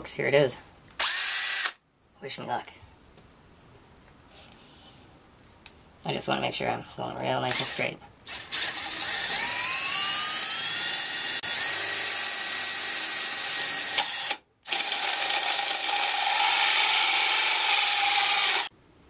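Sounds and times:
power drill boring with hole saw: 0:01.0 - 0:01.8, 0:07.5 - 0:18.7.

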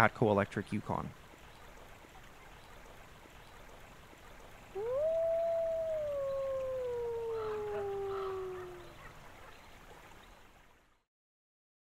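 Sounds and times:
dog howling: 0:04.8 - 0:09.0.

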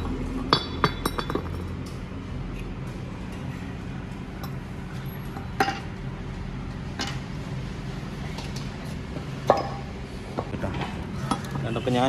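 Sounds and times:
metal clinks and knocks: 0:00.0 - 0:01.8.

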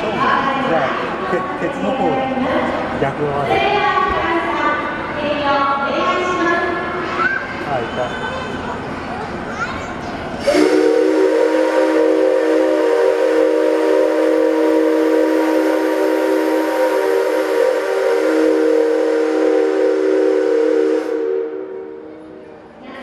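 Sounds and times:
hiss of steam: 0:10.4 - 0:21.4
steam locomotive whistle: 0:10.4 - 0:22.2.

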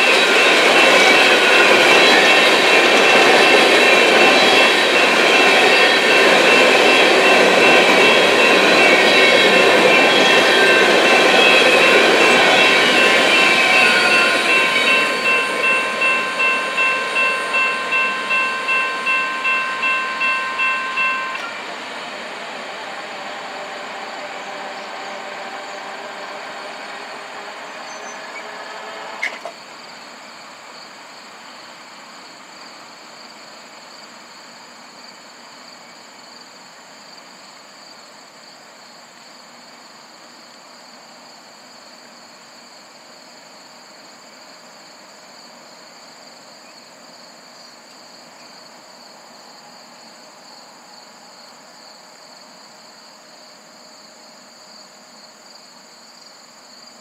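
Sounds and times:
ringing wheel squeal: 0:00.0 - 0:21.7, 0:23.0 - 0:29.5
train cars rolling: 0:00.0 - 0:29.9
insects chirping: 0:00.0 - 0:57.0.

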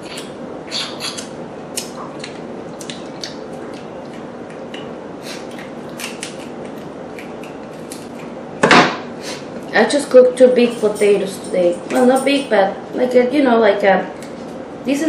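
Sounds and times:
lobster shell being chewed: 0:00.0 - 0:08.3
steady low hum: 0:00.0 - 0:15.0.

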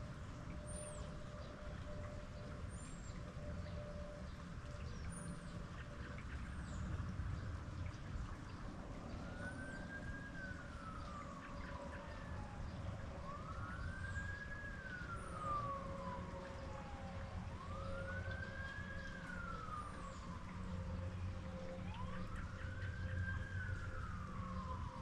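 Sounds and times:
faint emergency siren wailing: 0:00.0 - 0:25.0
low background rush: 0:00.0 - 0:25.0.

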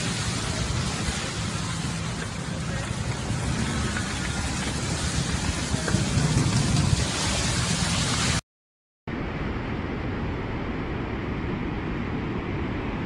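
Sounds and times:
car driving through slush: 0:00.0 - 0:08.4.

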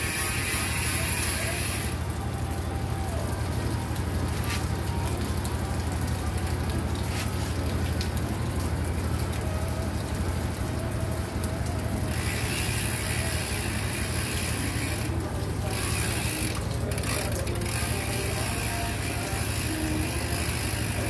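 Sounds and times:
bike freehub ratcheting clicks: 0:00.0 - 0:02.0, 0:12.1 - 0:21.0.

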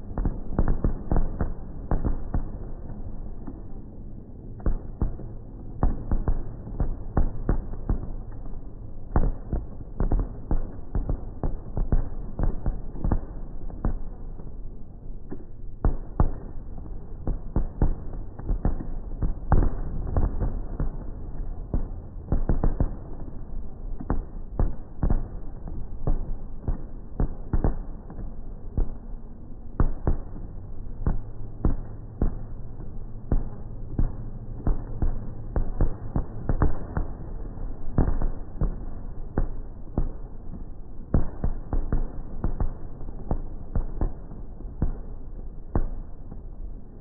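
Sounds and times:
low rumble: 0:00.0 - 0:47.0
fireworks bangs: 0:29.7 - 0:46.4.

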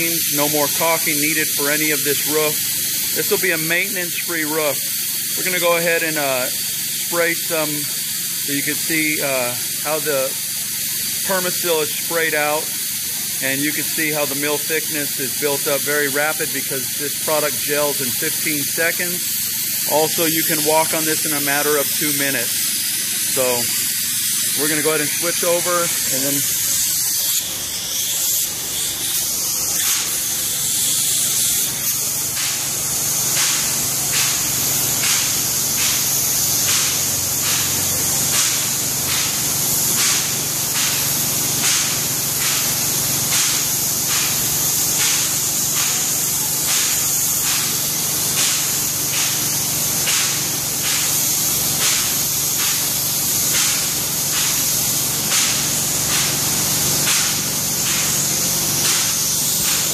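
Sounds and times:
spray gun hissing: 0:00.0 - 0:59.9.

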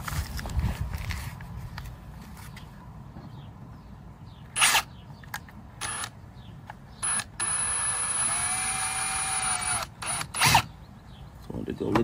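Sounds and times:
cordless drill driving screw: 0:05.8 - 0:06.1, 0:07.0 - 0:10.7.

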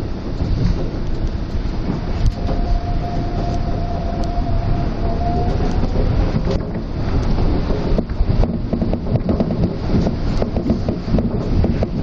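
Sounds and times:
steady whine: 0:00.0 - 0:08.8
monorail running gear rumbling: 0:00.0 - 0:12.0.

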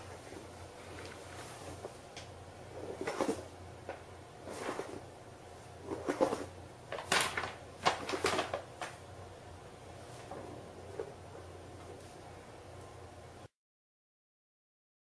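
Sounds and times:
paper bag rustling: 0:05.8 - 0:09.0.

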